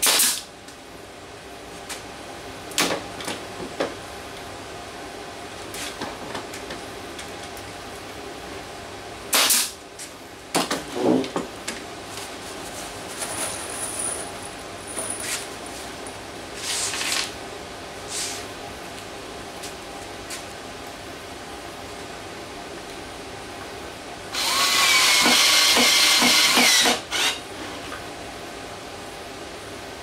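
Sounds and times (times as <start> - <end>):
brad nailer firing: 0.0 - 0.5, 9.3 - 9.8, 24.4 - 27.4
handling knocks and rustles: 10.0 - 17.3.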